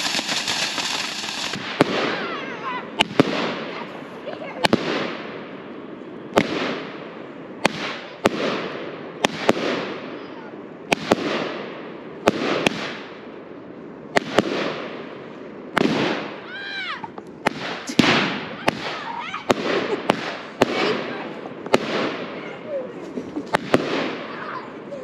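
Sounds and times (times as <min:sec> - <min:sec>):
firework hiss: 0:00.0 - 0:05.4, 0:15.7 - 0:25.0
firework bangs: 0:00.0 - 0:13.5, 0:14.1 - 0:25.0.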